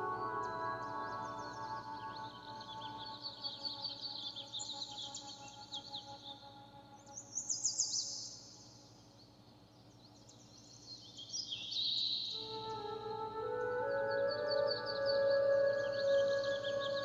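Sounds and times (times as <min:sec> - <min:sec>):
ambient music drone: 0:00.0 - 0:08.4, 0:12.4 - 0:17.0
birds chirping trills: 0:00.0 - 0:17.0.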